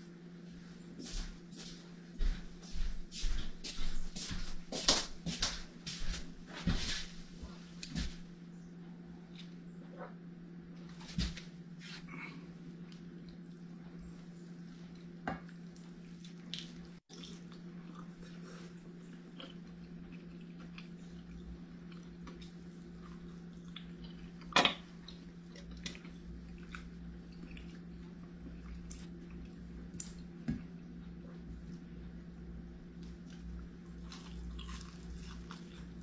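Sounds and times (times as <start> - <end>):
steady low hum: 0.0 - 36.0
biting and chewing: 32.9 - 36.0.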